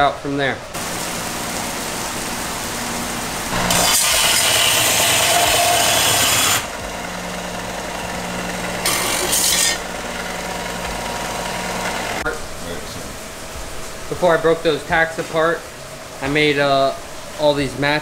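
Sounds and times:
power tool grinding metal: 3.5s - 6.9s, 7.6s - 12.2s.

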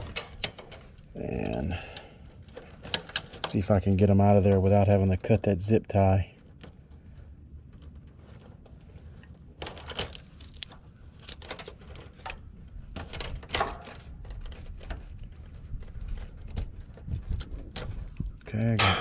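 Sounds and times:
wires clicking and rustling: 0.0s - 19.0s.

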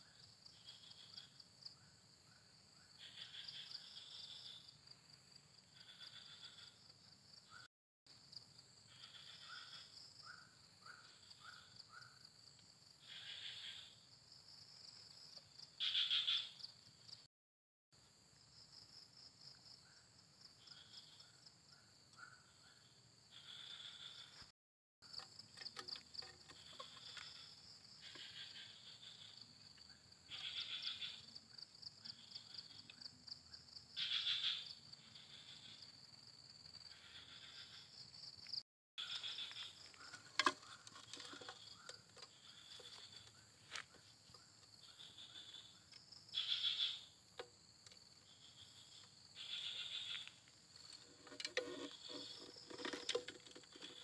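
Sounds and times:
crickets trilling: 25.1s - 54.0s.

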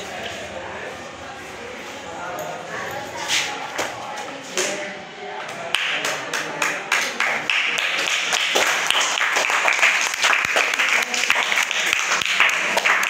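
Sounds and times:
children clapping: 5.7s - 13.0s.

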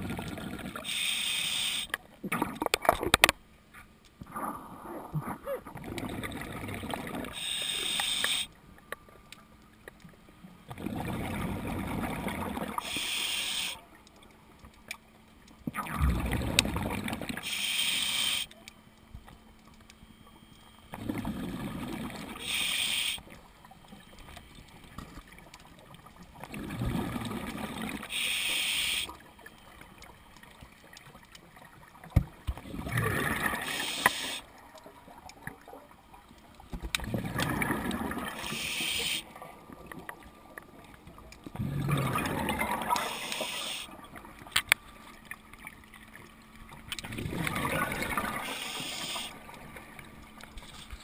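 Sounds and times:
regulator inhalation hiss: 0.8s - 2.0s, 7.4s - 8.5s, 12.8s - 13.8s, 17.4s - 18.5s, 22.4s - 23.2s, 28.1s - 29.2s, 33.6s - 34.5s, 38.4s - 39.2s, 43.0s - 43.9s, 48.4s - 49.4s
diver exhaling bubbles underwater: 10.7s - 12.8s, 15.8s - 17.4s, 26.5s - 28.1s, 32.6s - 34.3s, 37.0s - 39.1s, 41.6s - 43.8s, 47.0s - 49.2s.

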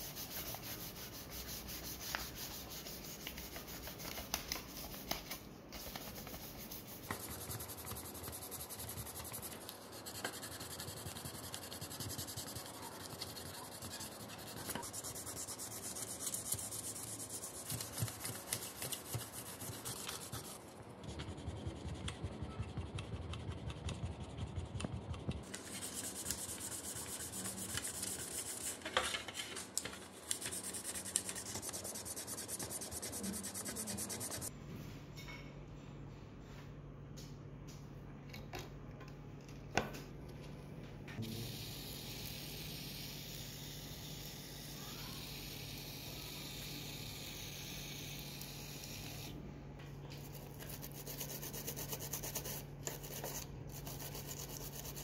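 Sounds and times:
sandpaper scratching plastic: 0.0s - 22.2s, 25.4s - 34.5s, 50.2s - 55.0s.

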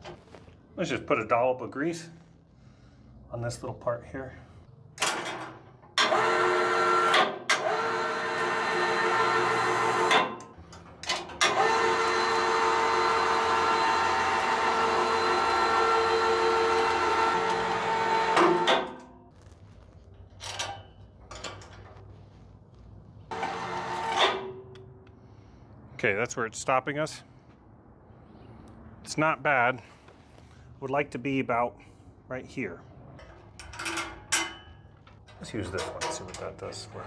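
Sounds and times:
electric winch motor humming: 6.0s - 10.4s, 11.4s - 19.0s, 23.3s - 24.5s.

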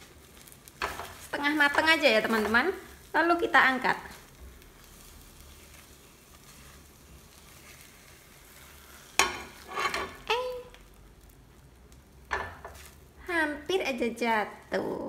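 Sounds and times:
spatula stirring: 0.0s - 10.4s
eggs sizzling in a pan: 0.0s - 15.0s
scraping and clatter in pan: 0.7s - 2.7s, 5.6s - 10.3s.

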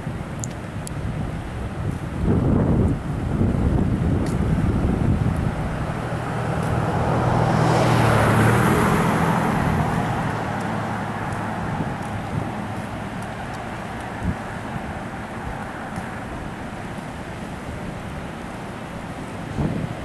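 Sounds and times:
creek water rushing: 0.0s - 20.0s
vehicle passing: 4.4s - 17.8s.

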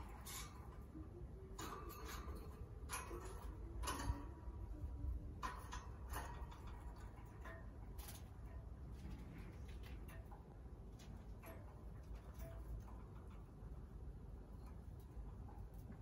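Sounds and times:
bird claws clicking on cage bars: 1.5s - 4.7s, 5.3s - 13.8s.

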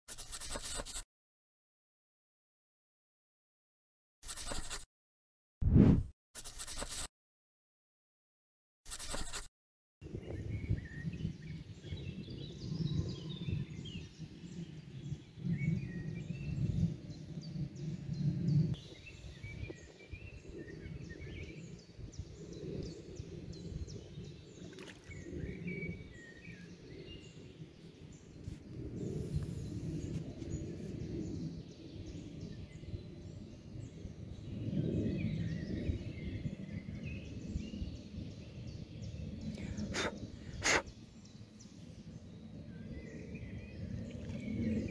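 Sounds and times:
songbirds singing: 10.0s - 44.9s.

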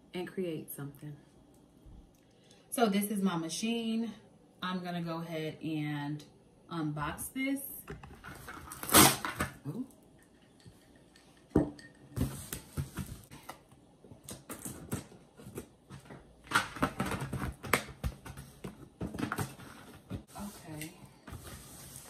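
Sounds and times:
cardboard packaging rustling: 8.1s - 9.6s.

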